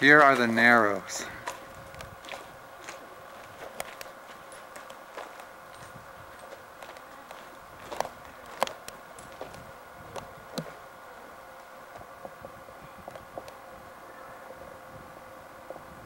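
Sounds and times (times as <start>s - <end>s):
camcorder tape hum and hiss: 0.0s - 16.0s
footsteps on rock and gravel: 0.1s - 10.8s.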